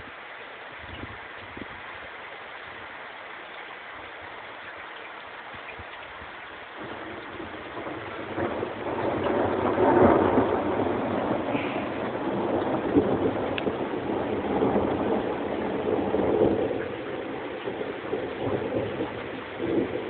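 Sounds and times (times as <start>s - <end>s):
rain hissing: 0.0s - 20.0s
thunder rumbling: 5.8s - 20.0s.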